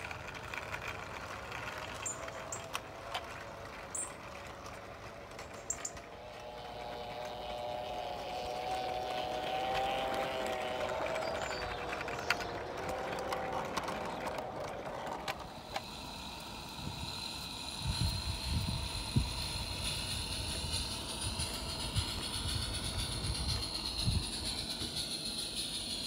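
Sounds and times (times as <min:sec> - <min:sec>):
wheels knocking over track: 0:00.0 - 0:16.1
model train wagons clicking: 0:00.0 - 0:26.0.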